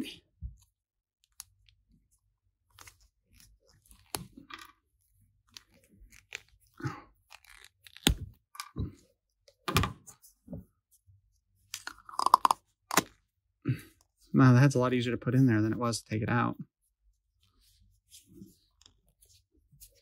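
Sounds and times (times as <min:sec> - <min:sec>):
plastic parts clicking and creaking: 0:11.8 - 0:13.2.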